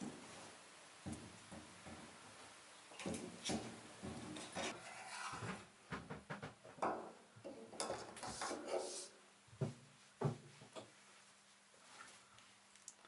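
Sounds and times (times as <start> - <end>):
metal rubbing and scraping: 4.2 - 5.6.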